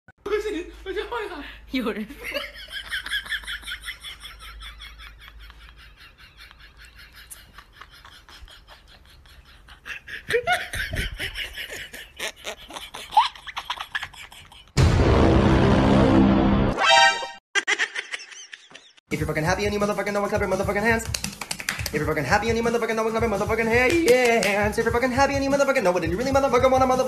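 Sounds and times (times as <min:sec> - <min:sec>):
people laughing: 0:02.2 - 0:14.8.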